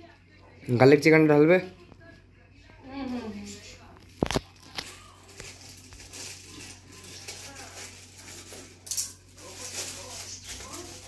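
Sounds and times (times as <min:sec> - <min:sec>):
foil crinkling: 0:04.0 - 0:11.0
metal bowls clinking: 0:08.3 - 0:09.4.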